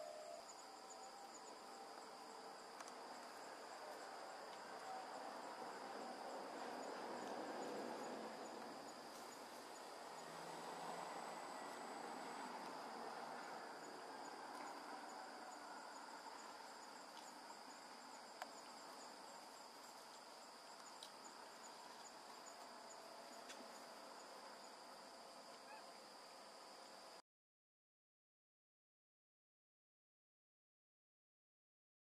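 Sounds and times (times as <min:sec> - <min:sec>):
high insect chirp: 0:00.0 - 0:27.2
insects droning: 0:00.0 - 0:27.2
soft ticks: 0:20.8 - 0:21.2.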